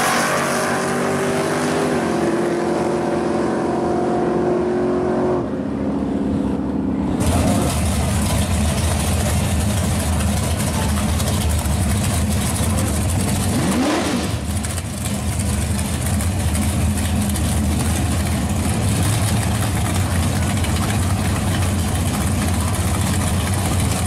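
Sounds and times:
engine revving: 0.0s - 5.5s, 7.0s - 24.0s
distant race cars running: 0.0s - 24.0s
race engines idling roughly: 7.2s - 24.0s.

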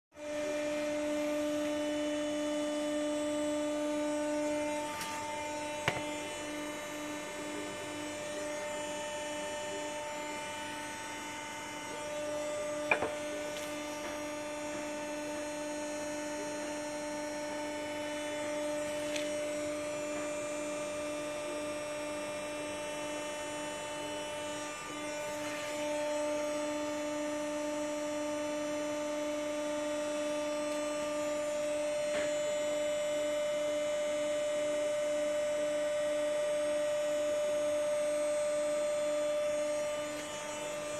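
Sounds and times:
roller machine motor hum: 0.2s - 28.1s, 38.9s - 40.9s.

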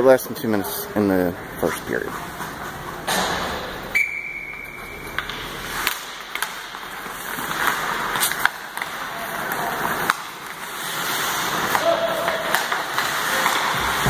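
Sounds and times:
skate blades scraping ice: 1.5s - 14.0s
sticks and puck knocking: 4.5s - 14.0s.

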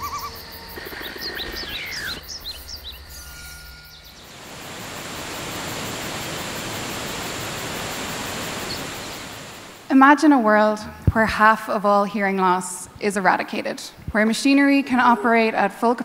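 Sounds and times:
birds chirping: 0.0s - 4.8s, 7.2s - 9.8s
falling water rushing: 4.2s - 9.9s.

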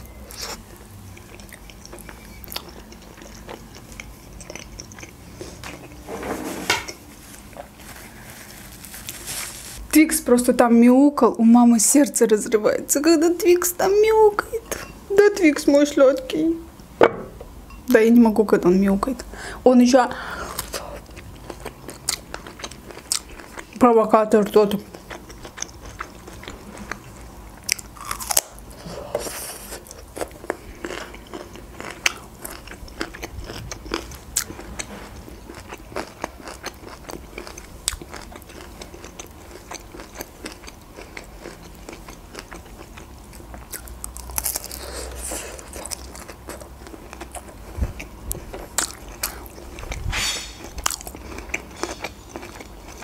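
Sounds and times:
chewing and crunching broccoli: 0.0s - 6.1s, 20.5s - 53.0s.

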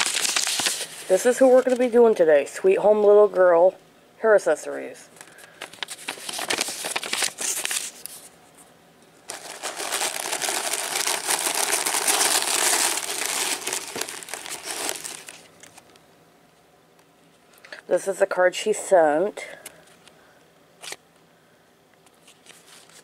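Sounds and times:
tissue paper crinkling: 0.0s - 1.9s, 5.4s - 8.3s, 9.3s - 15.8s.

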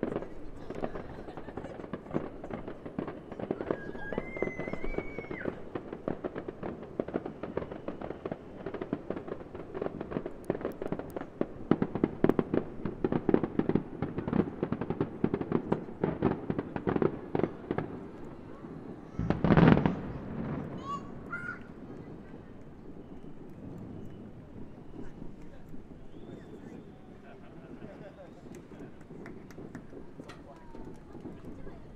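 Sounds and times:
fireworks crackling and popping: 0.0s - 31.9s
loud deep firework boom: 13.9s - 26.9s.

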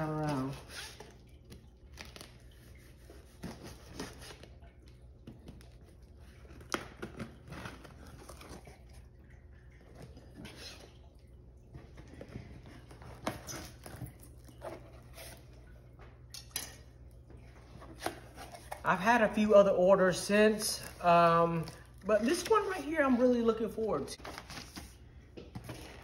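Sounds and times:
cardboard flaps scraping and rustling: 24.2s - 26.0s.

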